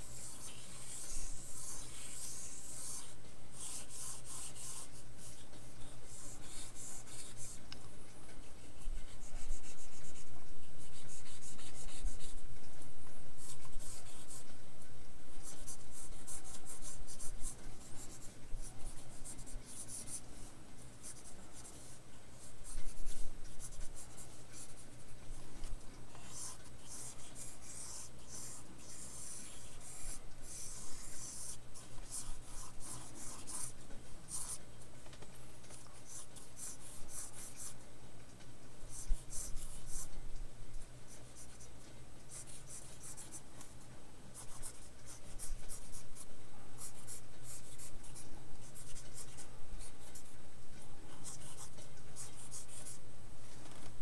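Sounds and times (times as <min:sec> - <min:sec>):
pencil scratching on paper: 0:00.0 - 0:07.6, 0:08.3 - 0:12.4, 0:13.4 - 0:14.5, 0:15.4 - 0:34.6, 0:35.7 - 0:37.8, 0:38.9 - 0:40.2, 0:41.1 - 0:43.7, 0:44.4 - 0:50.3, 0:51.1 - 0:53.0
low steady hum: 0:00.0 - 0:54.0.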